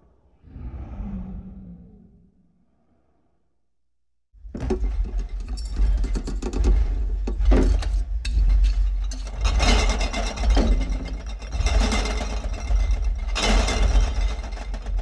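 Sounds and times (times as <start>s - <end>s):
deep gritty monster growl: 0.2s - 3.3s.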